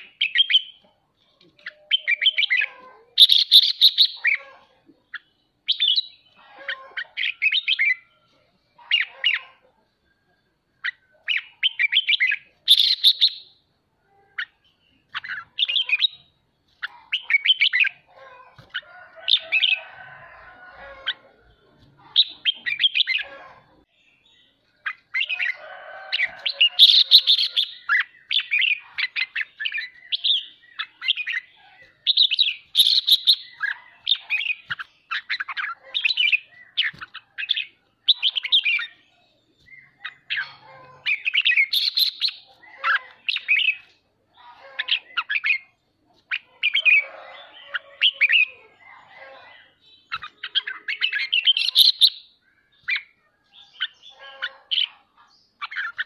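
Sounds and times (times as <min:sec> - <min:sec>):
bulbul singing: 0:10.8 - 0:13.6, 0:26.2 - 0:49.0.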